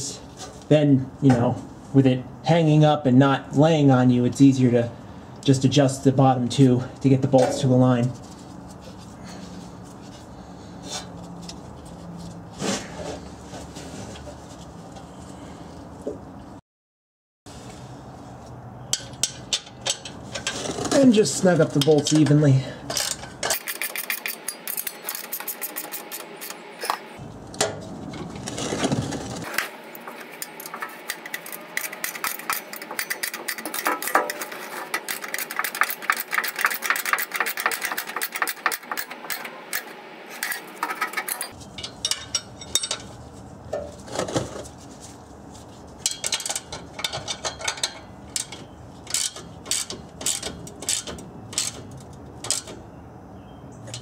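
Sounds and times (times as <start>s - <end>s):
hand ratchet clicking: 47.6s - 52.8s.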